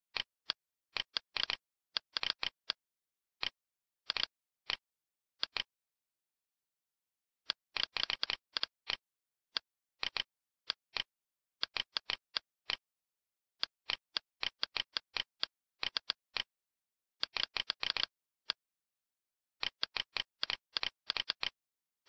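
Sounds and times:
computer mouse clicking: 0.2s - 2.8s, 3.4s - 4.8s, 5.4s - 5.7s, 7.5s - 9.0s, 10.0s - 12.8s, 13.6s - 16.5s, 17.2s - 18.6s, 19.6s - 21.6s.

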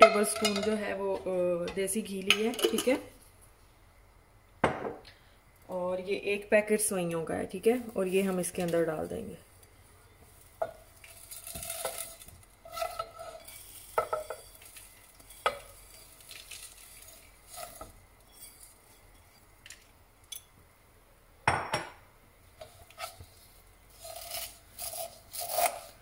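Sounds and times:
dry noodles rustling in pan: 7.5s - 20.4s, 22.4s - 26.0s
spatula scraping pan: 10.6s - 19.5s, 22.5s - 26.0s.

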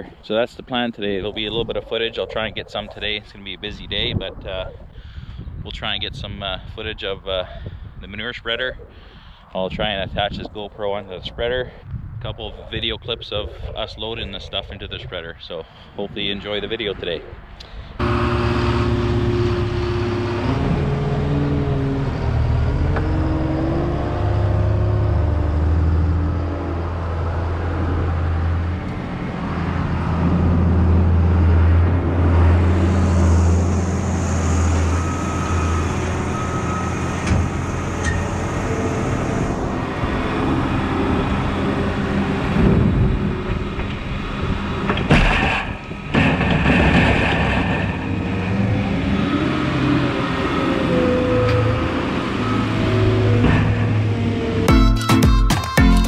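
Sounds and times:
diesel engine under hydraulic load: 17.6s - 54.7s.

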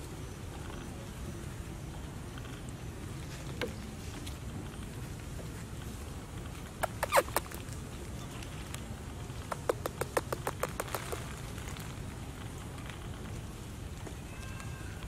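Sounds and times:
sharp crackling snaps: 5.8s - 14.7s.

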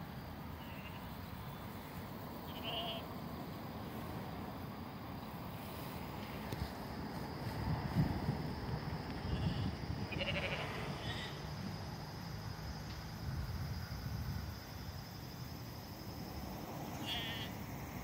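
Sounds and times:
distant sheep bleating: 0.6s - 1.2s, 2.4s - 3.1s, 9.3s - 11.3s, 17.0s - 17.6s
wind rumbling on microphone: 6.4s - 11.9s, 13.1s - 15.1s.

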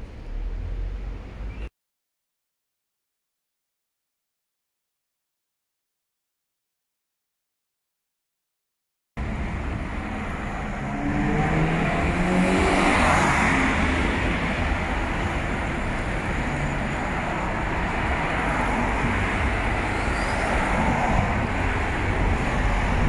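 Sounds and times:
rumble of passing vehicles: 0.0s - 1.7s, 9.2s - 23.0s
engine passing close: 9.2s - 23.0s.

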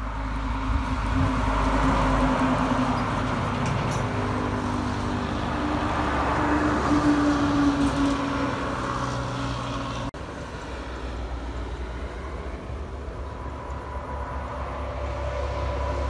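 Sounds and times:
distant traffic rumble: 0.0s - 16.0s
truck driving past: 0.0s - 16.0s.

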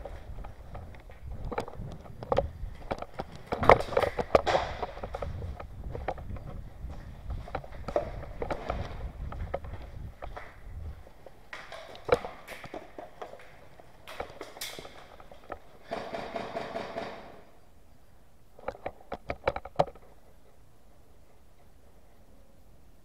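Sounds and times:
scuffing footsteps on concrete: 0.0s - 15.4s.

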